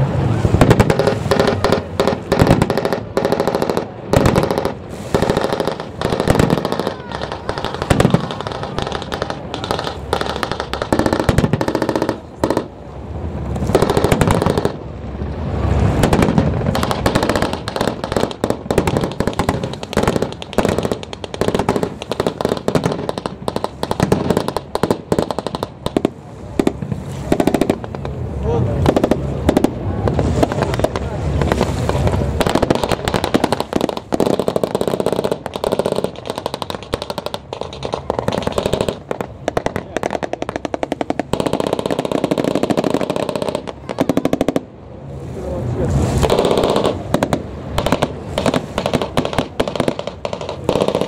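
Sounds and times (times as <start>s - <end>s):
machine-gun fire bursts: 46.3s - 51.0s.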